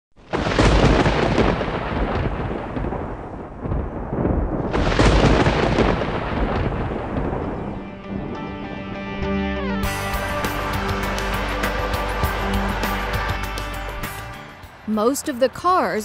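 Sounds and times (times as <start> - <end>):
thunderclaps with deep rumble: 0.2 - 7.8.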